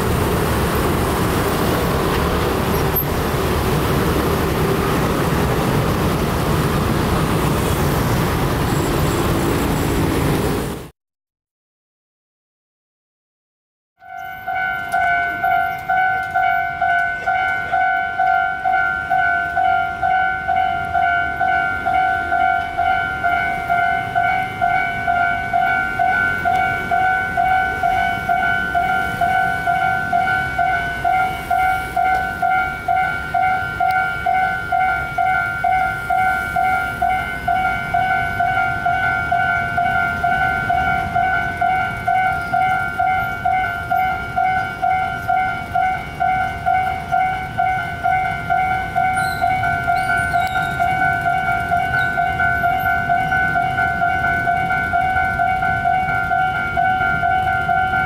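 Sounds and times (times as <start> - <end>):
level crossing warning bell: 14.0 - 58.0.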